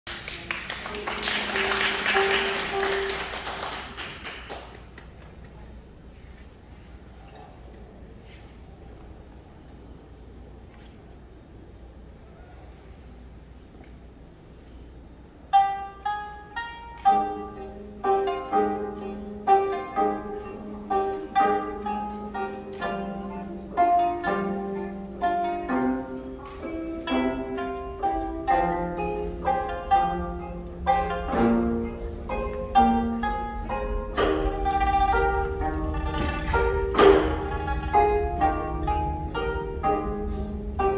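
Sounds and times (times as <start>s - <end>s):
plucked string melody: 0.8s - 3.4s, 15.4s - 40.9s
lower ringing string notes: 15.5s - 40.9s.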